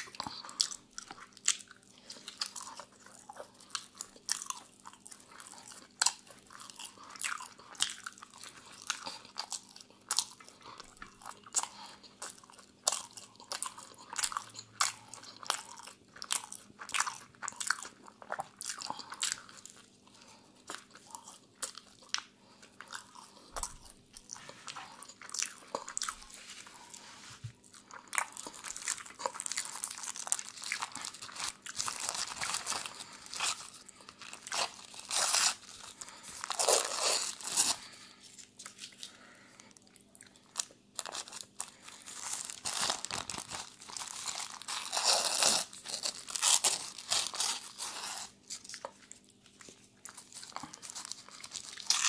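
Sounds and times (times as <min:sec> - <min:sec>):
person chewing food: 0:00.0 - 0:52.0
food wrapper crinkling: 0:25.0 - 0:52.0.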